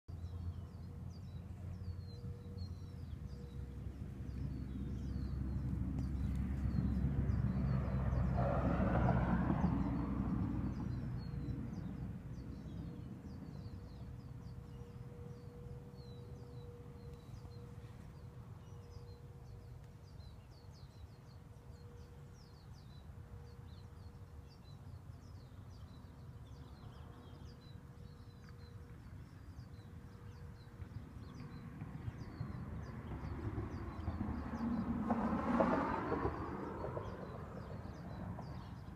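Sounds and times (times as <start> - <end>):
small birds chirping: 0.1 - 8.4.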